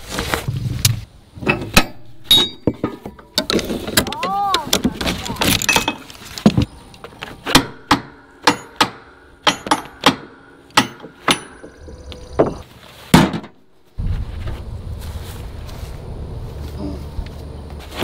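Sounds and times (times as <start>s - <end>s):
steady low rumble: 13.6s - 17.8s.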